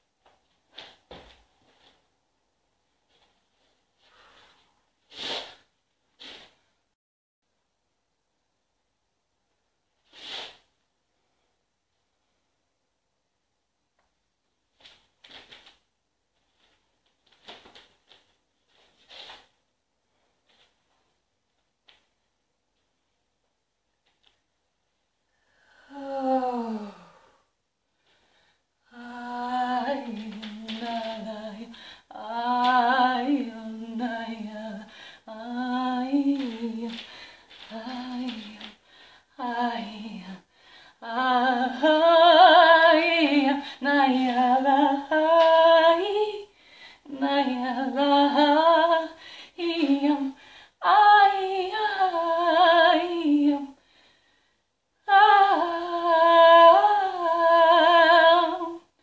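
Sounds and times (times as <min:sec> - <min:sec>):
woman singing wordlessly and humming: 0:25.9 - 0:27.3, 0:28.8 - 0:53.8, 0:55.0 - 0:59.0.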